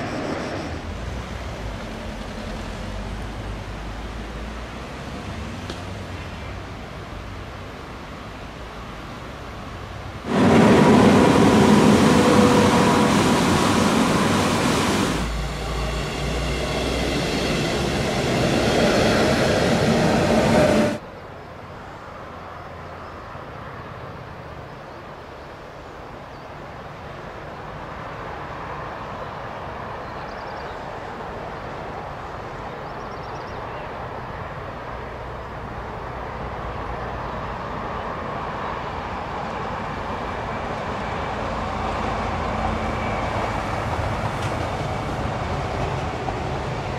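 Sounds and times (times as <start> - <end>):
rushing river water: 0.0 - 30.1
train rail rumble: 10.1 - 21.0, 34.8 - 46.9
electric train running: 10.3 - 21.0.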